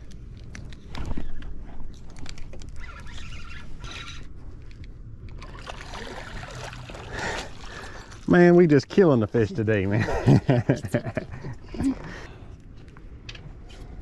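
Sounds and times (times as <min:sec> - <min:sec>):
water splashing: 0:05.4 - 0:08.6.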